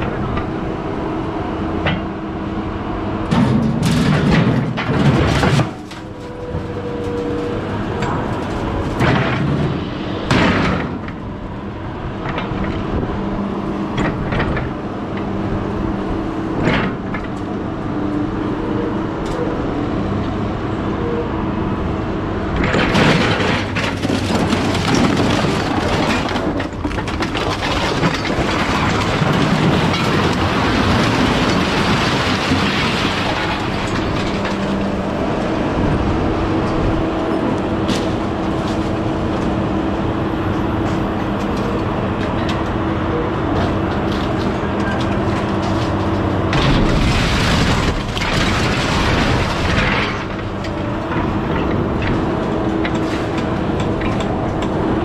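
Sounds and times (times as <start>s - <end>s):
loader engine and hydraulic hum: 0.0s - 55.0s
scrap metal clanking and crashing: 3.3s - 11.2s, 22.6s - 35.0s, 37.4s - 39.6s, 43.5s - 54.7s.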